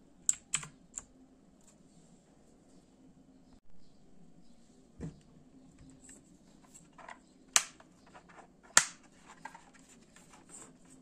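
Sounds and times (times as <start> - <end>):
keyboard handling taps and rustles: 5.8 - 11.0.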